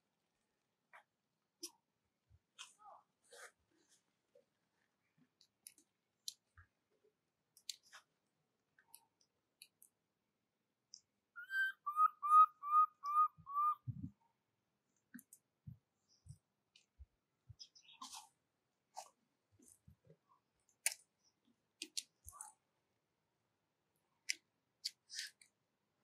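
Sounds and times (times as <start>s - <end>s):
faint clicks and ticks: 5.2s - 6.8s
whistled notes: 11.4s - 13.8s.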